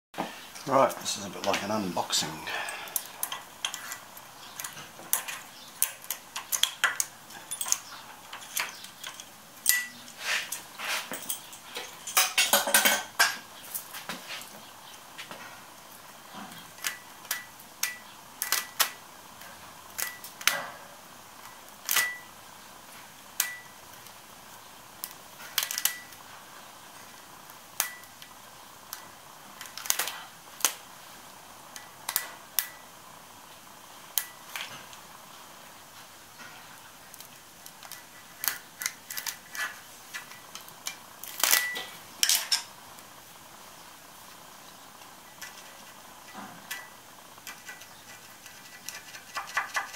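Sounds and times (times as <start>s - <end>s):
sharp clicks and metallic clinks: 2.7s - 13.4s.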